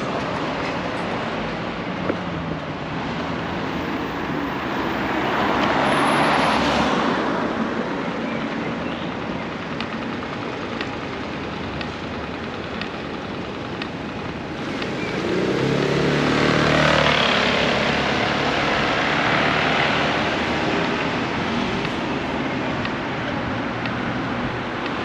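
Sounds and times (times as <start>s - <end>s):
traffic background: 0.0s - 25.0s
vehicle engine passing by: 15.2s - 20.6s.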